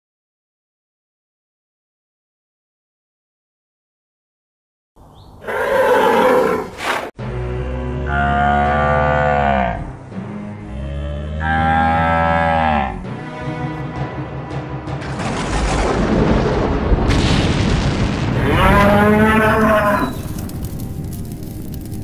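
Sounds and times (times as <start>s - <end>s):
cattle mooing: 5.4s - 13.0s, 18.4s - 20.2s.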